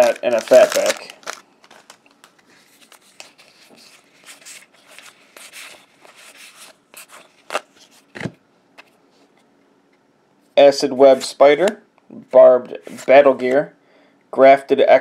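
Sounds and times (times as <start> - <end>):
cards sliding and rubbing: 2.5 - 9.4.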